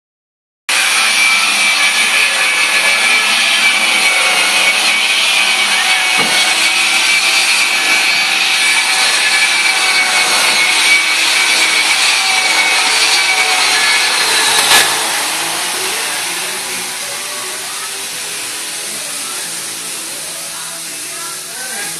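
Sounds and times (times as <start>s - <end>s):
hiss: 0.7s - 21.9s
machine whirring with high whine: 0.7s - 21.9s.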